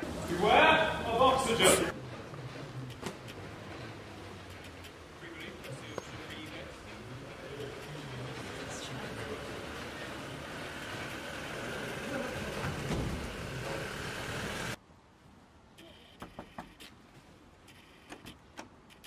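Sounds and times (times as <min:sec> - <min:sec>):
van engine and tyres passing: 0:00.0 - 0:14.8.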